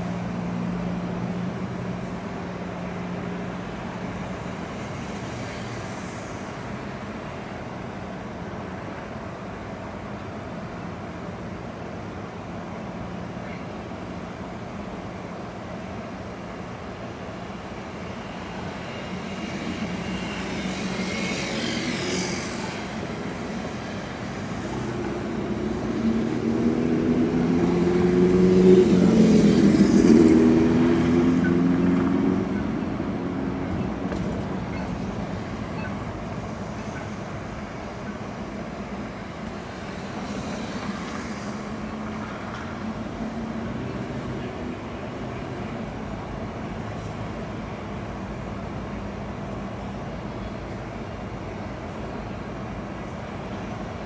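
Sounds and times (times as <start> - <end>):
tyre hiss of passing cars: 0.0 - 54.0
vehicle engine accelerating: 24.7 - 35.1.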